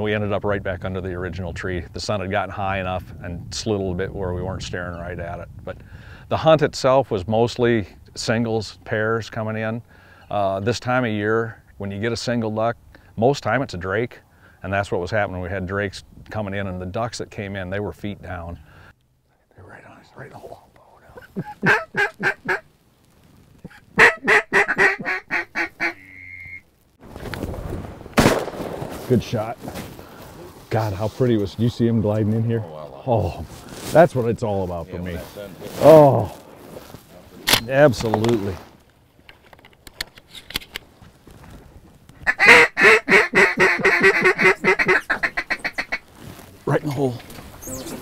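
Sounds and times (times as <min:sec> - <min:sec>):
duck call quacks: 0:21.4 - 0:22.7, 0:23.7 - 0:26.6, 0:42.2 - 0:46.0
shotgun blast: 0:28.2 - 0:29.0.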